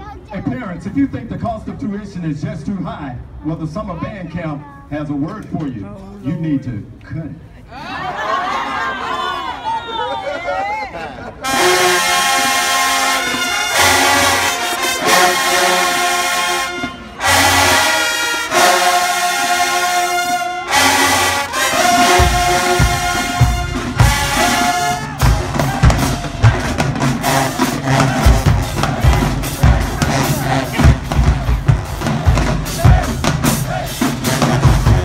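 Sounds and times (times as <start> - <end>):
brass band chords: 11.3 - 35.0
bass drum hits: 22.1 - 24.6, 25.2 - 35.0.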